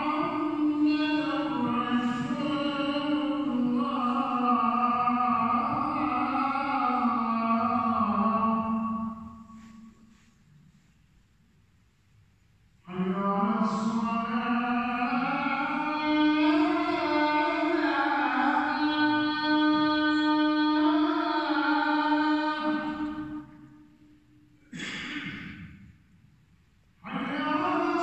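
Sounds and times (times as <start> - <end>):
person chanting recitation: 0.0 - 9.9, 12.9 - 23.6, 27.0 - 28.0.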